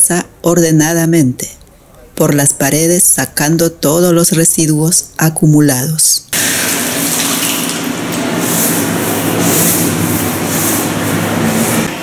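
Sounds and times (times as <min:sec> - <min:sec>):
broom scrubbing wet concrete: 0:06.6 - 0:12.0.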